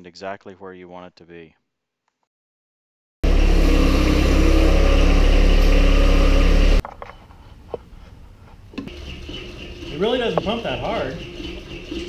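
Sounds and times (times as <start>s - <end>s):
tractor diesel engine running: 3.2s - 6.8s.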